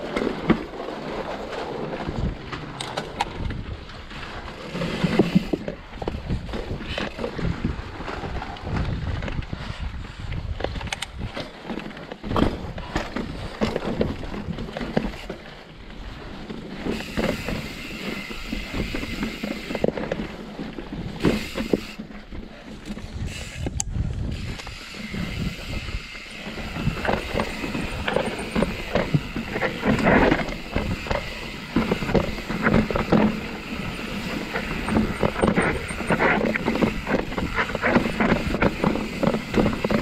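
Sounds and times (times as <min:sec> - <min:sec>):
bike rattling and clattering: 0:00.0 - 0:40.0
bike tyres rolling over rock: 0:00.0 - 0:40.0
wind buffeting microphone: 0:01.9 - 0:04.5, 0:05.4 - 0:11.5, 0:22.8 - 0:40.0.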